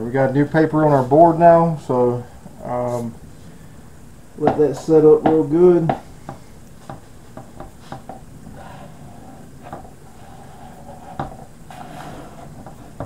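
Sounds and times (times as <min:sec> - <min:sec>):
palms rubbing sandpaper: 0:08.6 - 0:13.0.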